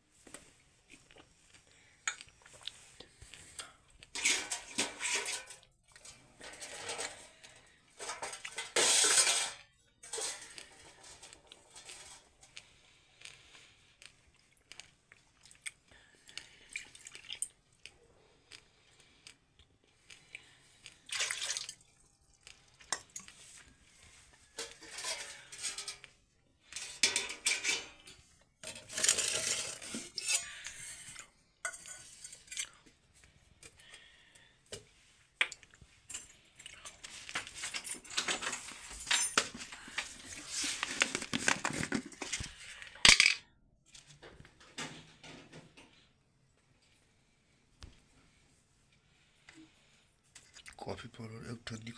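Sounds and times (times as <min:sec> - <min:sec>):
utensils and pots clinking: 0:04.1 - 0:12.3, 0:24.4 - 0:26.1, 0:26.7 - 0:32.8, 0:36.1 - 0:42.4.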